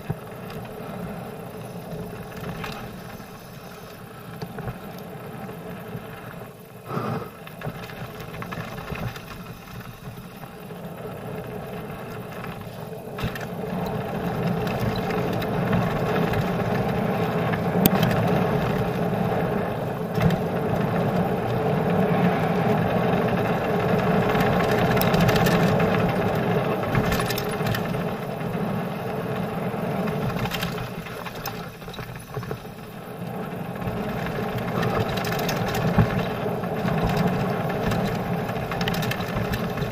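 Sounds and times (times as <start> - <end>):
bike rattling: 0.0 - 39.9
bike tyres rushing on gravel: 0.0 - 39.9.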